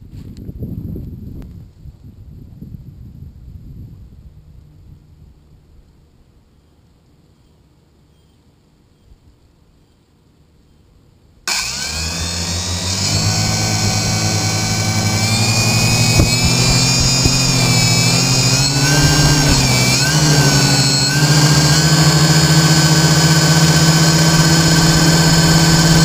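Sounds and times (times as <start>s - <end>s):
drone motors whining: 11.5s - 26.0s.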